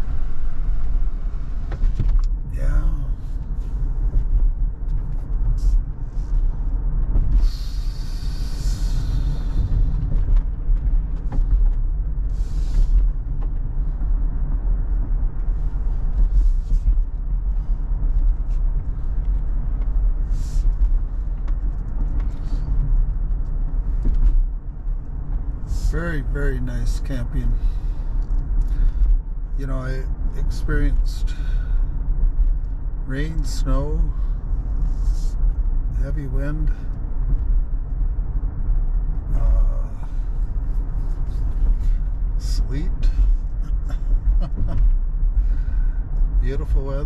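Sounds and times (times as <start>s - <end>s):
road and tyre rumble in car: 0.0s - 47.0s
hiss: 7.4s - 9.7s.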